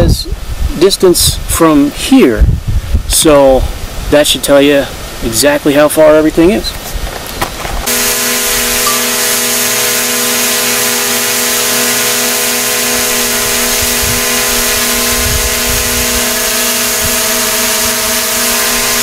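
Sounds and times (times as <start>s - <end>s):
drone propellers buzzing: 7.8s - 19.0s.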